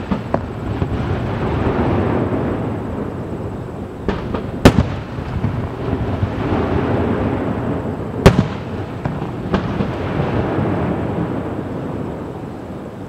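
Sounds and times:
small firework pops: 0:00.0 - 0:01.0, 0:04.0 - 0:05.5, 0:08.2 - 0:09.9
firework booms: 0:00.0 - 0:13.0.

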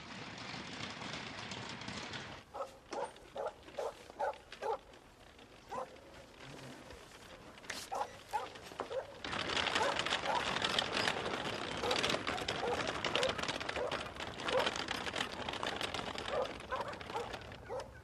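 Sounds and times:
horse-drawn cart rolling: 0:00.0 - 0:18.0
dog barking: 0:02.6 - 0:04.9, 0:05.7 - 0:06.0, 0:07.9 - 0:09.2, 0:09.8 - 0:10.5, 0:11.8 - 0:14.7, 0:16.3 - 0:18.0.

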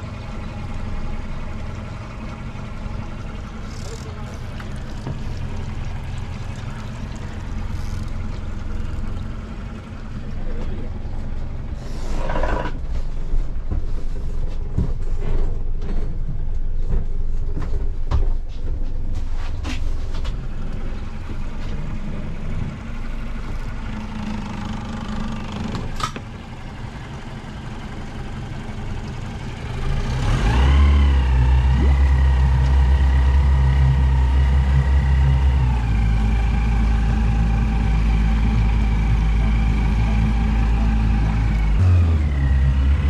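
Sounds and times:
outboard motor idling: 0:00.0 - 0:17.6, 0:19.8 - 0:43.0.

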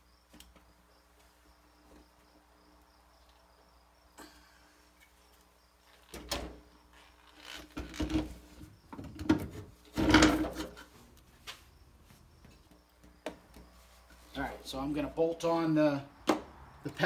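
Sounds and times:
metal clunks and scraping: 0:07.6 - 0:11.6.

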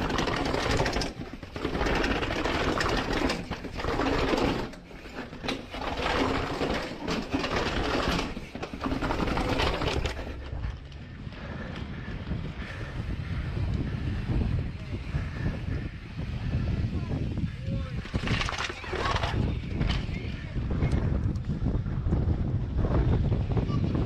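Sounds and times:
bike chain and suspension knocking: 0:00.0 - 0:14.2, 0:17.4 - 0:21.8
bike tyres rattling down steps: 0:00.0 - 0:22.4.

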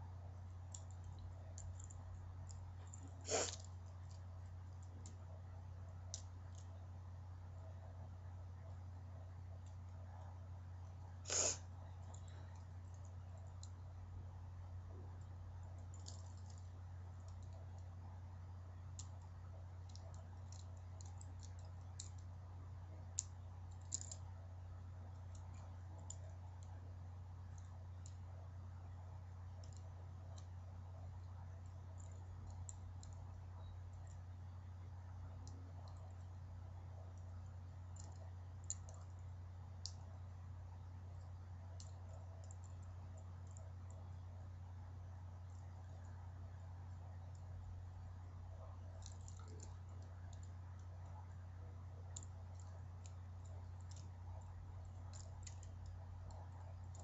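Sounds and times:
steady low hum: 0:00.0 - 0:57.0
plastic toy parts clicking: 0:23.2 - 0:24.2.

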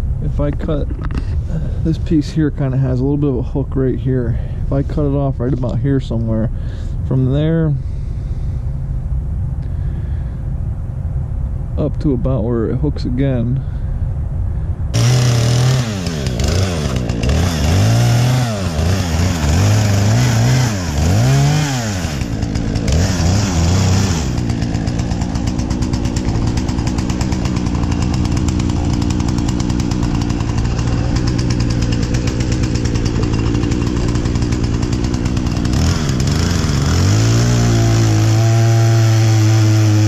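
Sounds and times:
chainsaw cutting log: 0:14.9 - 0:40.0.

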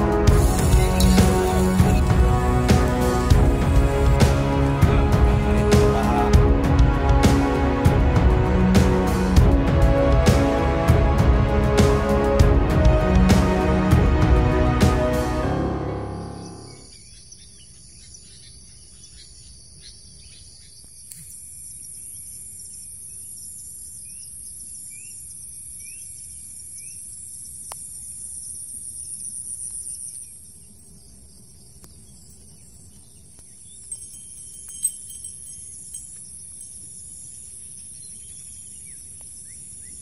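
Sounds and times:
high-pitched insect chorus: 0:00.0 - 0:06.3, 0:16.1 - 0:40.0.

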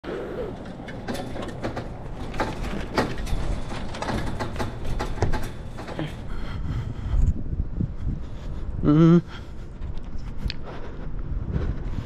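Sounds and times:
chain-link fence rattling: 0:00.4 - 0:06.4
low rumble: 0:05.4 - 0:12.0.

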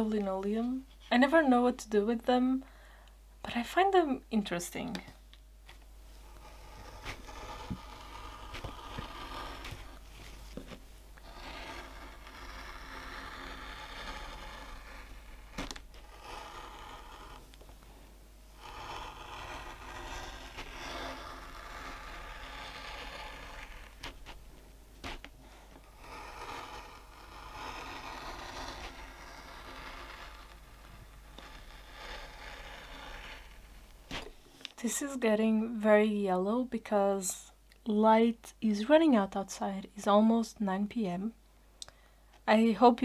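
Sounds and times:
gouge scraping linoleum: 0:06.2 - 0:17.6, 0:18.5 - 0:34.4.

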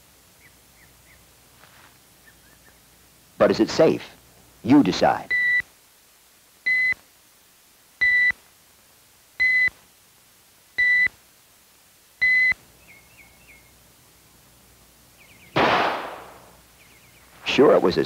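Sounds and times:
rifle shot: 0:15.6 - 0:16.6.

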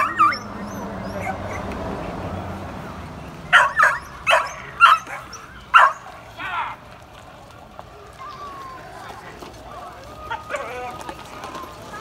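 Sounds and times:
dog barking: 0:03.5 - 0:06.1.

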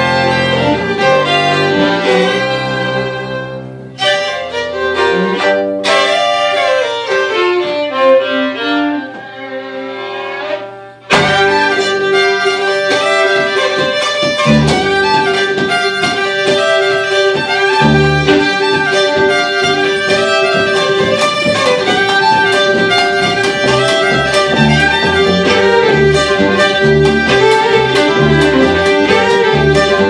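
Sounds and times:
fiddles playing folk tune: 0:00.0 - 0:30.0
double bass low notes: 0:22.7 - 0:30.0.

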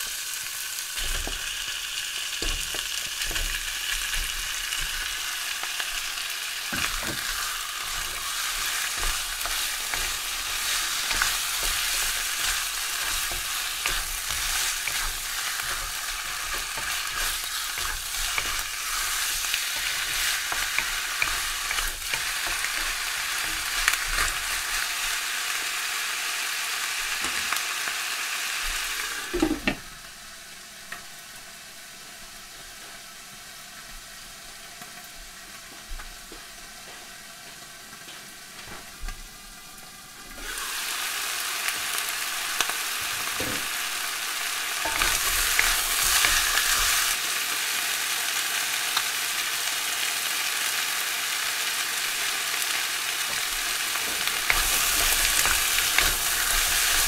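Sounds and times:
chicken sizzling in hot oil: 0:00.0 - 0:57.0
wooden spatula stirring: 0:06.7 - 0:24.8.

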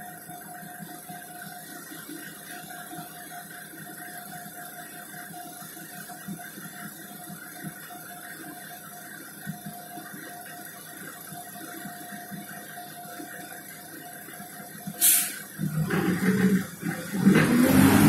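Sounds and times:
constant whine: 0:00.0 - 0:18.0
diesel engine running: 0:15.0 - 0:18.0.

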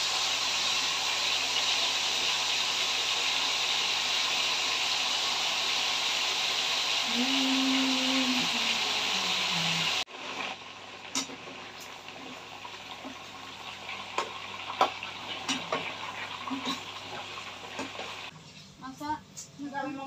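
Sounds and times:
food sizzling in oil: 0:00.0 - 0:18.4
loud hiss: 0:03.1 - 0:10.1.

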